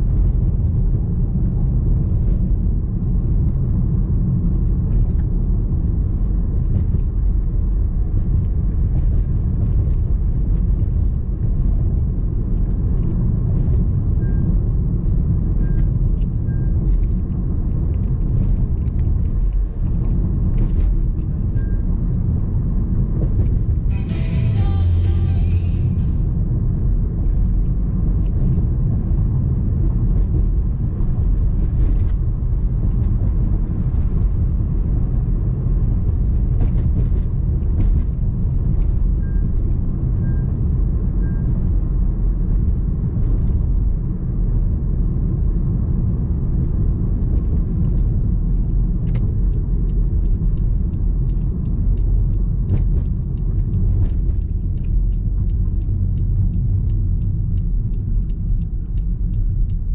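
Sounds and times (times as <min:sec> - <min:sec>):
car driving road noise: 0:00.0 - 0:59.9.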